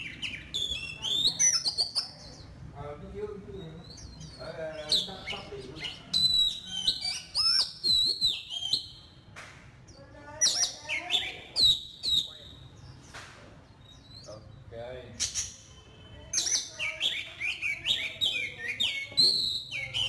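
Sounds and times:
bird singing whistles: 0:00.0 - 0:02.2, 0:03.7 - 0:09.2, 0:10.5 - 0:12.8, 0:15.2 - 0:20.0.

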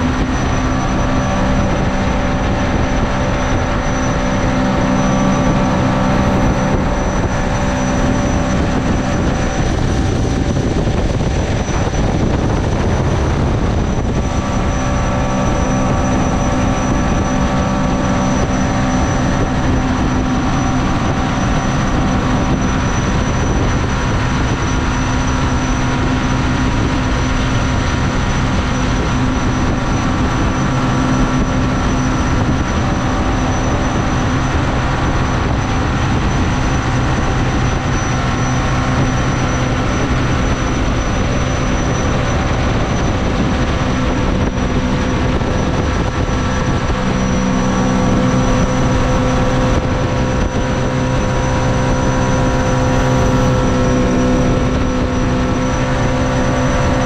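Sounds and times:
jet boat engine droning: 0:00.0 - 0:57.0.

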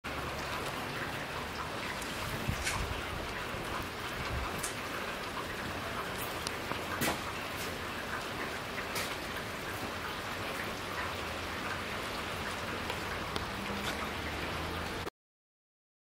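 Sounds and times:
rain on wet pavement: 0:00.1 - 0:15.1.

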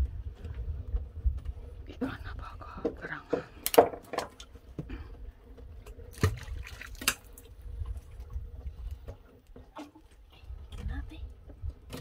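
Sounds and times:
low rumble: 0:00.0 - 0:03.2.

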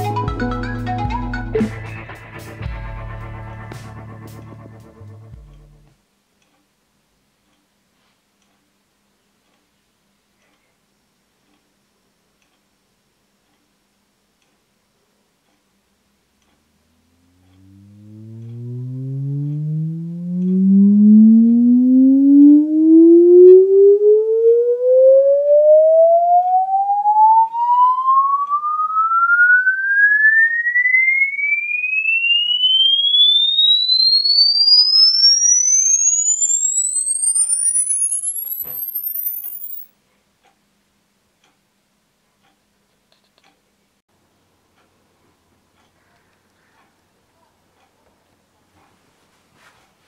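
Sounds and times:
sine-wave frequency sweep tone: 0:16.9 - 0:39.9.

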